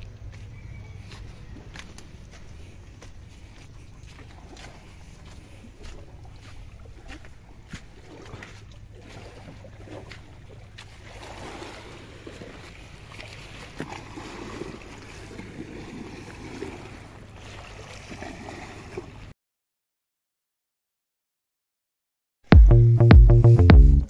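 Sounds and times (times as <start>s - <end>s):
waves lapping on pebbles: 1.0s - 19.3s.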